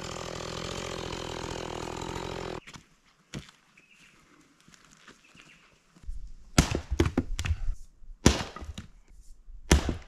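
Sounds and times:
axe chopping wood: 0:06.6 - 0:07.6, 0:08.2 - 0:08.9, 0:09.7 - 0:10.0.

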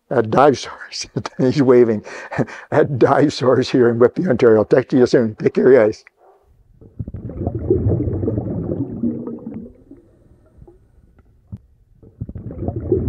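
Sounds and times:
underwater bubbling and gurgling: 0:06.8 - 0:13.0.

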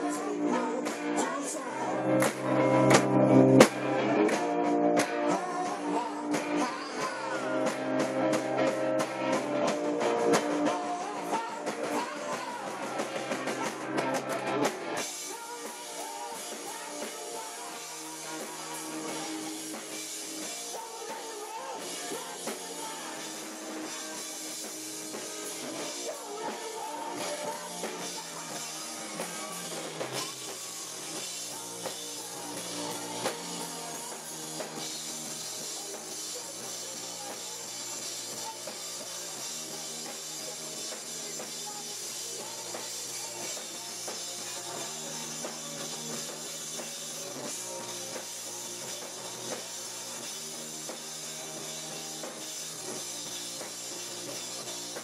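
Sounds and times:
drum kit: 0:00.0 - 0:55.0
electric guitar: 0:00.0 - 0:55.0
person singing: 0:00.0 - 0:55.0.

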